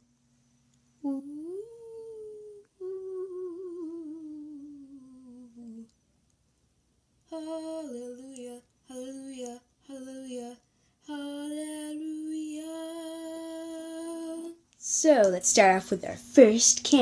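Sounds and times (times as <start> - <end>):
girl humming: 1.0 - 5.9, 7.3 - 14.6
girl singing: 1.0 - 5.9, 7.2 - 14.7.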